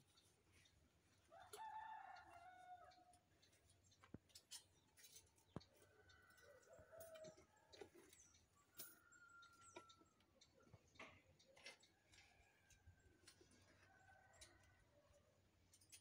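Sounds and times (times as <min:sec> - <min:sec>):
clicks of tie wire and rebar: 0:03.0 - 0:05.8, 0:15.6 - 0:16.0.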